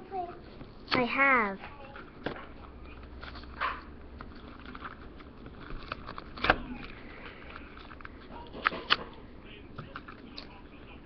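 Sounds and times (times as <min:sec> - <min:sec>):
toy packaging crackling: 0:04.2 - 0:09.0.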